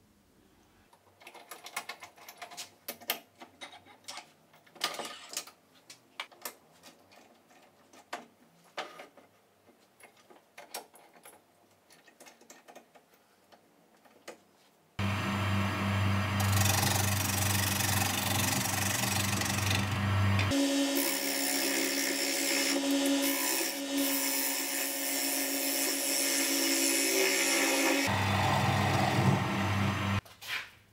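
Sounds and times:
lathe running hum: 15.0s - 24.6s, 27.1s - 30.2s.

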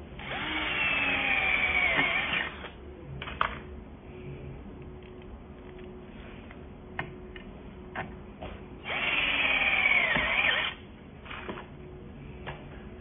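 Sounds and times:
cordless drill motor whine: 0.2s - 2.8s, 8.8s - 11.6s.

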